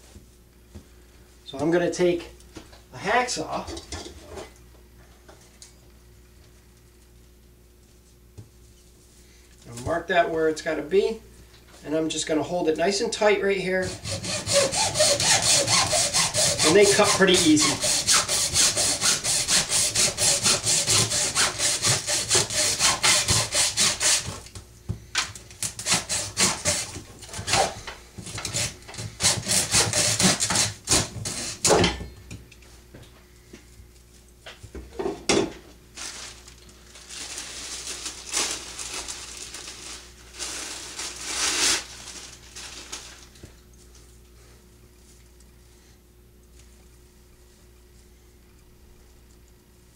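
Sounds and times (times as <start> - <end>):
hacksaw cutting wood: 13.8 - 24.4, 25.6 - 31.8.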